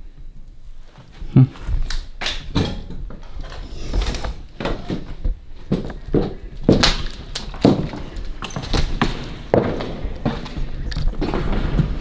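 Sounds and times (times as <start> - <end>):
footsteps on hard floor: 3.1 - 12.0.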